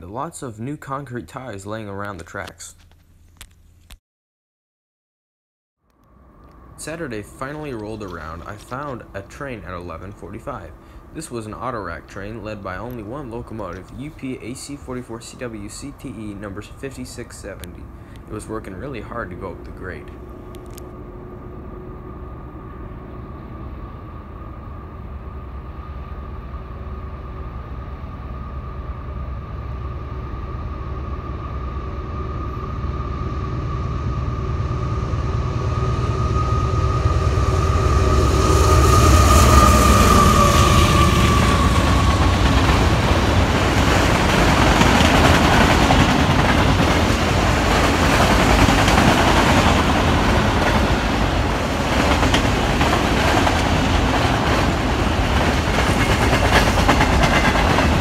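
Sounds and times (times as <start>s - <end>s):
locomotive engine rumble and whine: 5.9s - 58.0s
train wheels clattering past: 6.8s - 20.2s, 35.6s - 58.0s.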